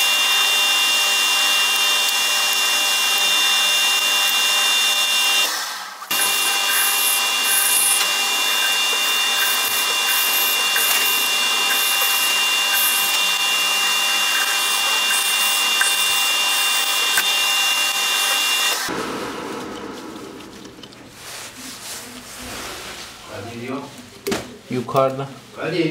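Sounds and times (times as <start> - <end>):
metal lathe whining: 0.0 - 5.5, 6.1 - 21.0
rasping rub on spinning screw: 6.1 - 18.5.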